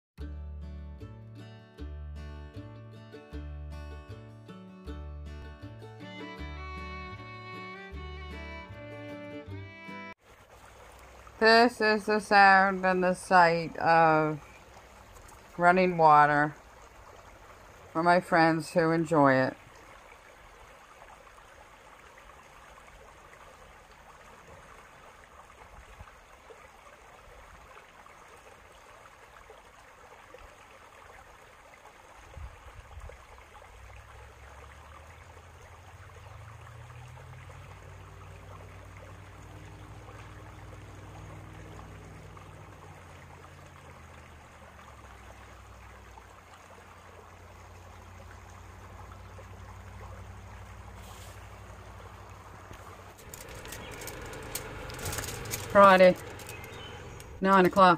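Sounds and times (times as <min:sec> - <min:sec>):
low engine drone: 0:06.1 - 0:10.2, 0:35.7 - 0:45.8, 0:47.6 - 0:57.9
stream running over stones: 0:10.1 - 0:57.9.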